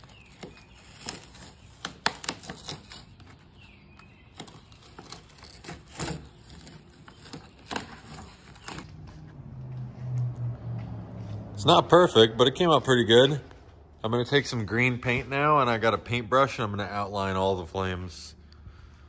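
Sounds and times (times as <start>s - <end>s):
masking tape peeling off: 0.0s - 8.9s.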